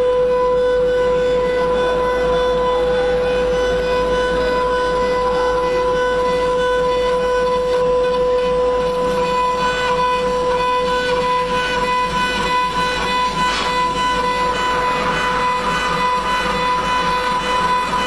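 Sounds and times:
router spindle whining: 0:00.0 - 0:18.0
cutter hissing on metal: 0:08.8 - 0:18.0
sharp metal scrape: 0:11.6 - 0:18.0.

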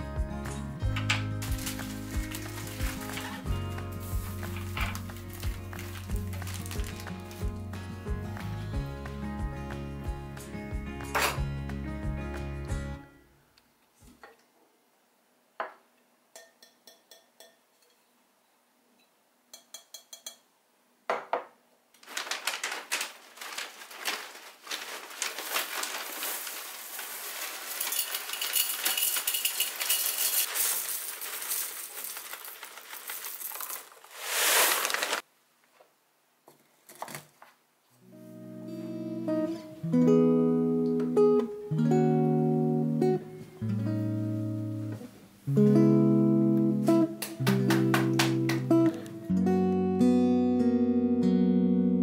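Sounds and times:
cereal flakes rattling into glass: 0:01.4 - 0:03.4, 0:04.0 - 0:07.3, 0:22.1 - 0:35.2.

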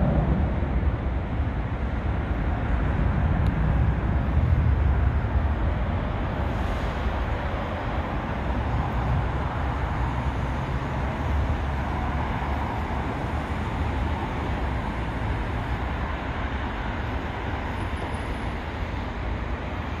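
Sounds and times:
jet engine rumble: 0:00.0 - 0:20.0.

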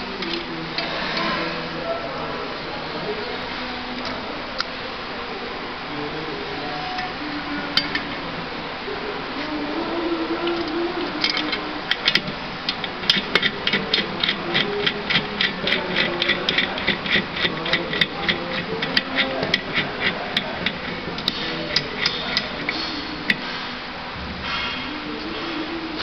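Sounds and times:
metal parts clicking: 0:10.4 - 0:23.4.

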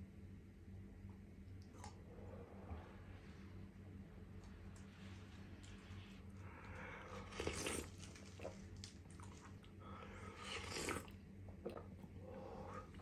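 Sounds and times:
person slurping soup: 0:07.2 - 0:08.4, 0:10.3 - 0:11.1.

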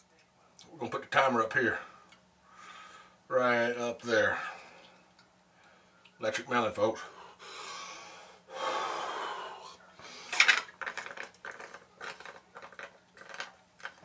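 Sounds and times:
man breathing: 0:01.8 - 0:03.2, 0:07.1 - 0:10.4.

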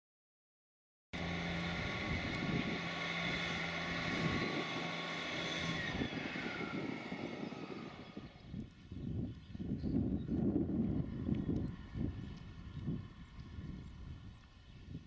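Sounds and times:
diesel trains passing: 0:01.2 - 0:08.5.

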